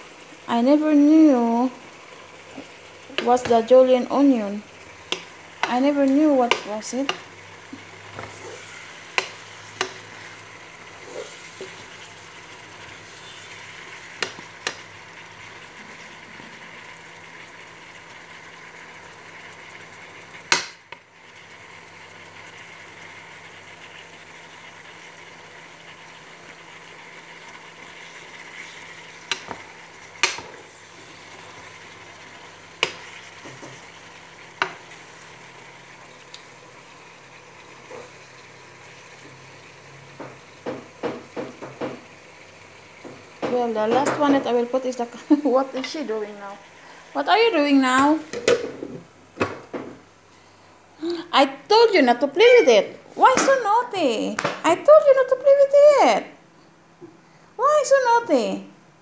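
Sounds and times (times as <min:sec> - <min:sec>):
food sizzling in a pot: 0:00.0 - 0:59.0
spatula knocking against pot: 0:30.2 - 0:30.5.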